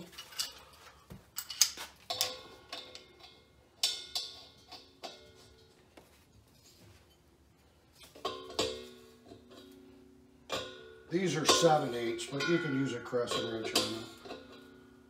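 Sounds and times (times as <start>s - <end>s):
metal fitting clinking on cylinder: 0.0s - 5.7s, 10.5s - 14.9s.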